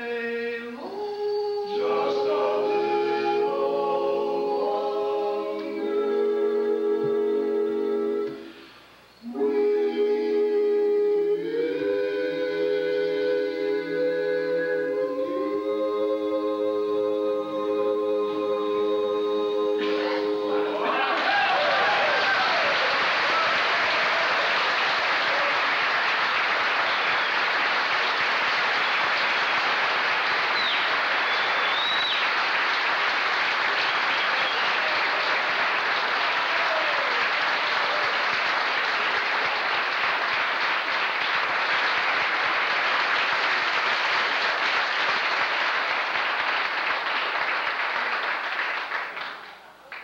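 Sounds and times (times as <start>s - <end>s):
audience applauding: 19.8s - 50.0s.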